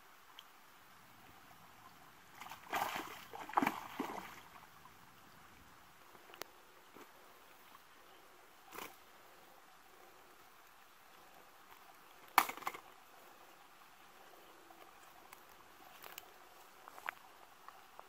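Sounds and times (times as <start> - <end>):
short splash: 2.4 - 4.4
fish thrashing in water: 2.4 - 4.5.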